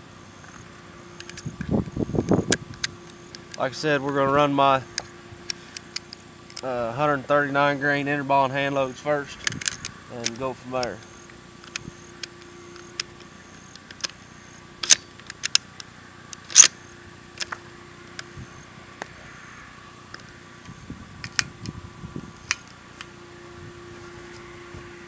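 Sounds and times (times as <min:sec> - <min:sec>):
faint steady hum: 0:00.0 - 0:25.0
gear handling clicks and knocks: 0:09.3 - 0:14.2, 0:14.8 - 0:16.8.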